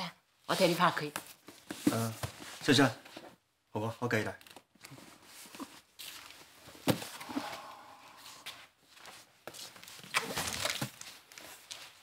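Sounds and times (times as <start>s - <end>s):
rustling cardboard and tape: 0.5s - 3.4s, 4.4s - 12.0s
footsteps: 5.4s - 10.0s.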